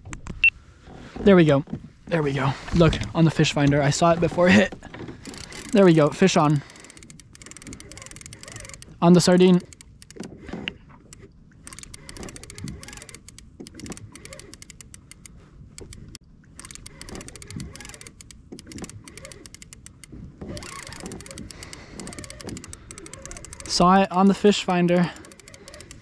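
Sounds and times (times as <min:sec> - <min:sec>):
fishing reel clicking: 0:05.2 - 0:10.3, 0:11.0 - 0:26.0.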